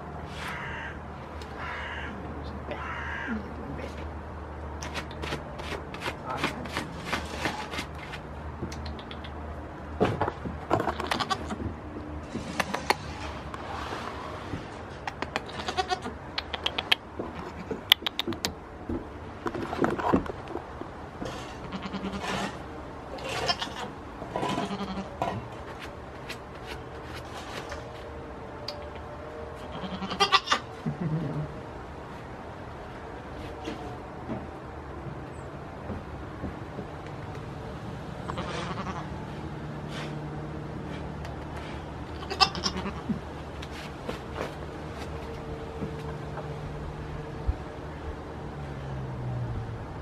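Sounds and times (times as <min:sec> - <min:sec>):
sharp clicks: 0:08.7 - 0:09.4, 0:16.3 - 0:17.0, 0:17.9 - 0:18.6
goat bleating: 0:10.8 - 0:11.6, 0:15.5 - 0:16.2, 0:21.6 - 0:22.3, 0:23.2 - 0:25.1, 0:29.7 - 0:31.6, 0:38.2 - 0:39.1, 0:42.1 - 0:43.2
sharp clicks and knocks: 0:16.4 - 0:21.0.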